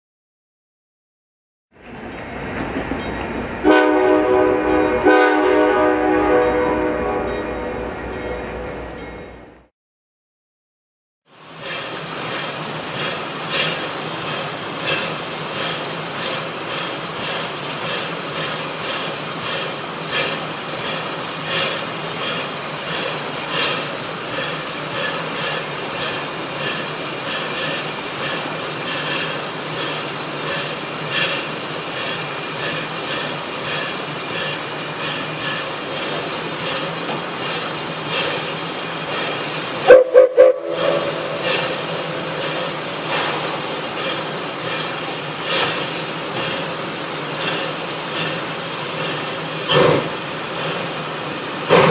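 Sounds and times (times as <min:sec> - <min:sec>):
steam whistle blasts: 0:03.6 - 0:08.2, 0:39.8 - 0:42.9
steam hissing: 0:11.3 - 0:51.9.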